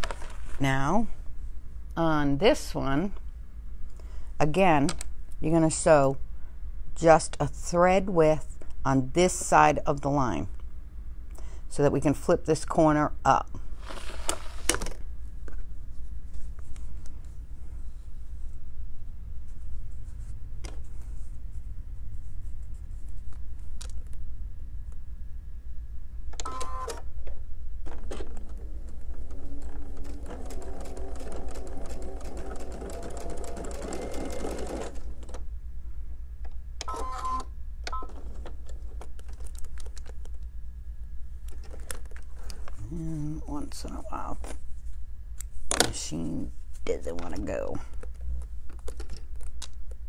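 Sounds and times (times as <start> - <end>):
sewing machine stitching: 29.2 - 35.4.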